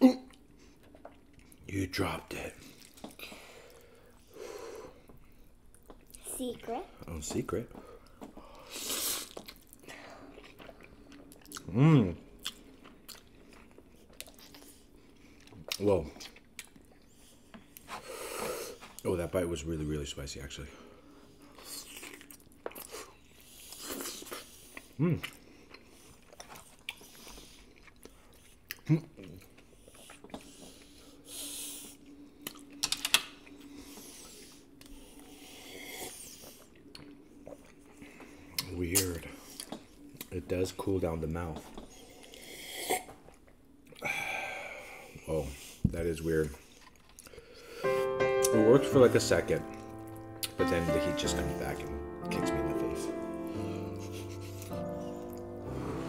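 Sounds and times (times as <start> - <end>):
wet chewing clicks: 9.2 - 11.7, 12.4 - 17.9
person slurping noodles: 53.6 - 56.0.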